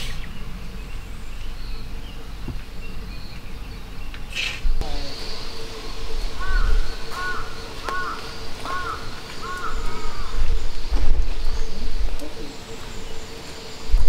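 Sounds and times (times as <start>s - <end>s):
crow cawing: 6.4s - 10.5s.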